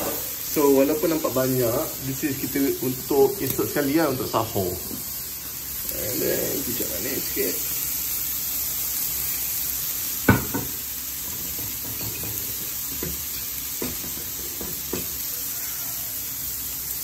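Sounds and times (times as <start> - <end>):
food sizzling in a frying pan: 0.0 - 17.0
utensil knocking against pan: 10.3 - 10.7, 11.4 - 13.2.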